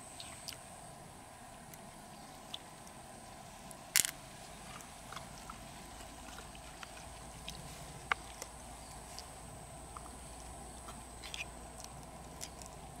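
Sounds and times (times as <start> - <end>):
faint steady background: 0.0 - 13.0
hands handling shells and pearls: 3.7 - 5.3, 10.8 - 12.9.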